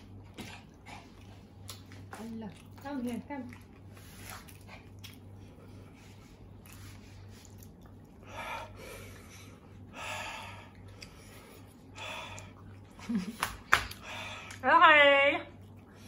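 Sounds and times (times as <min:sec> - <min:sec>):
steady low hum: 0:00.0 - 0:16.0
man breathing heavily while eating: 0:04.0 - 0:13.0, 0:13.8 - 0:14.6.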